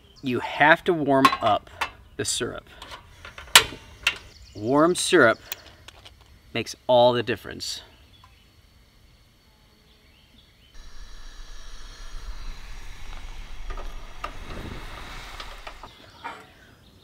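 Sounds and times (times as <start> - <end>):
gas burner flame rushing: 10.8 - 16.2.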